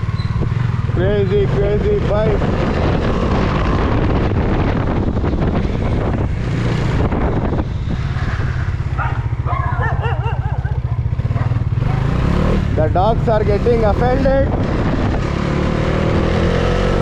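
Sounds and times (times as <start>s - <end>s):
motorcycle engine pulsing: 0.0s - 16.8s
dogs barking: 8.9s - 12.1s.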